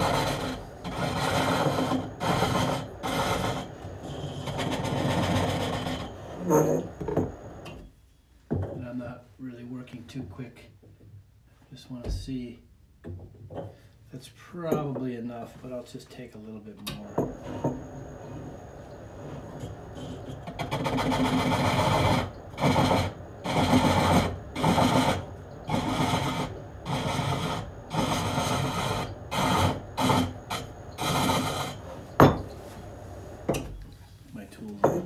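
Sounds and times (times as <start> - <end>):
hook tool cutting spinning wood: 0.0 - 7.0, 19.4 - 32.4.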